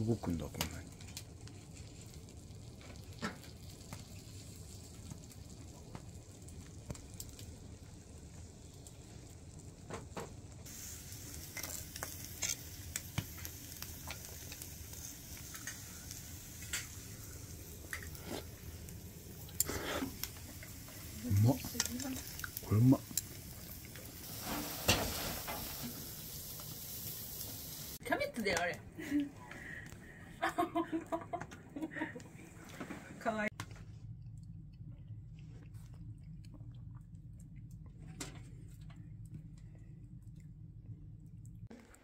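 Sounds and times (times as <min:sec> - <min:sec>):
scallop sizzling in shell: 0:00.2 - 0:09.8, 0:10.6 - 0:28.0.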